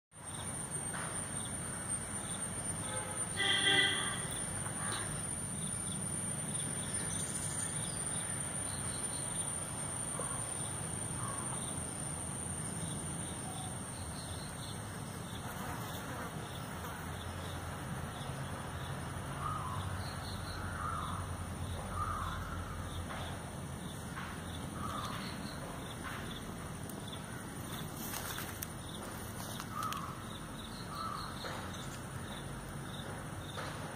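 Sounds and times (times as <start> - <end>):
crows cawing: 20.6 - 21.3, 21.9 - 22.8, 29.7 - 30.2, 30.9 - 31.4.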